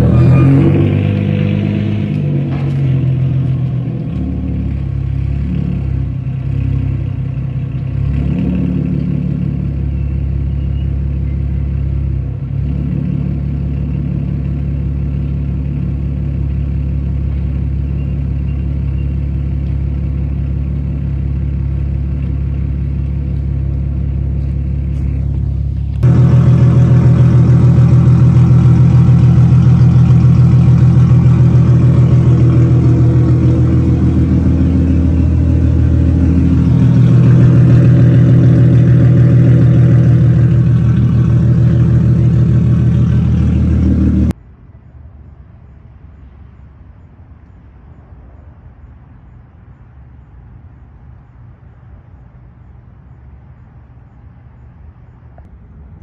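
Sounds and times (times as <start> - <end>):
car engine idling with loud exhaust: 0.0 - 44.4.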